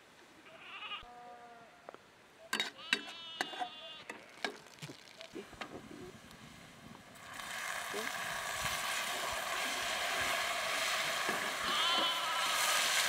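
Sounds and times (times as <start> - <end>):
goats bleating: 0.4 - 2.0, 2.6 - 4.4, 11.3 - 13.0.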